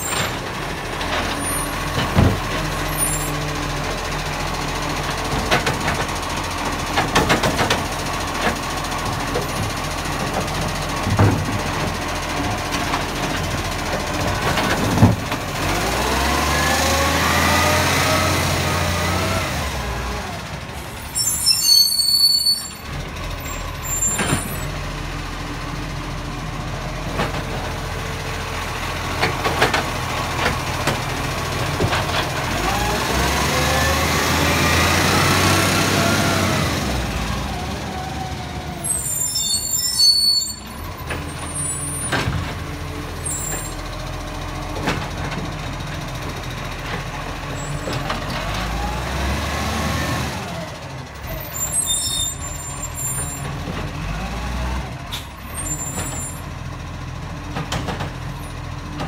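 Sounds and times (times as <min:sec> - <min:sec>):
clanks and knocks: 0:01.0 - 0:02.7, 0:05.1 - 0:06.2, 0:06.9 - 0:12.0, 0:12.7 - 0:15.4, 0:29.2 - 0:32.4, 0:57.5 - 0:58.3
garbage truck diesel engine idling: 0:55.0 - 0:59.0.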